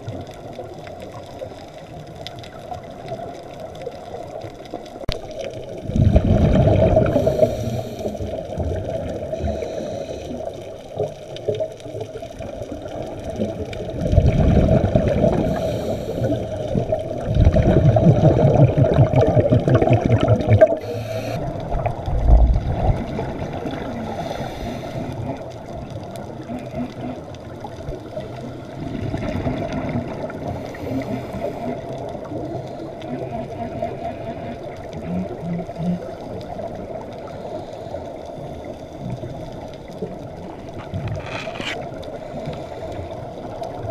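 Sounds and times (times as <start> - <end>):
steady underwater hum: 0.0 - 43.9
underwater breath bubbling: 5.8 - 10.9, 12.8 - 27.3, 28.1 - 43.9.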